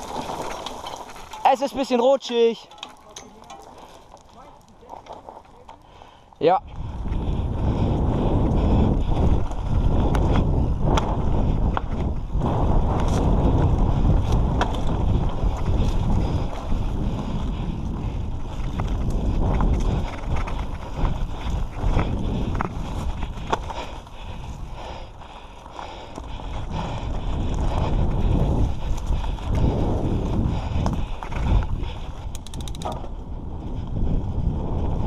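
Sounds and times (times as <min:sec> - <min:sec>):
bike clicks and knocks: 0:00.0 - 0:06.1, 0:09.2 - 0:16.8, 0:18.4 - 0:24.6, 0:25.6 - 0:33.2
bike tyres rolling on dirt: 0:00.0 - 0:35.0
wind buffeting microphone: 0:03.4 - 0:35.0.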